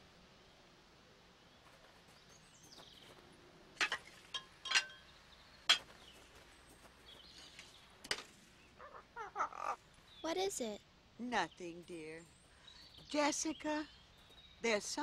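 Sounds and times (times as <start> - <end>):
faint bird chirps: 4.8 - 10.8, 11.4 - 15.0.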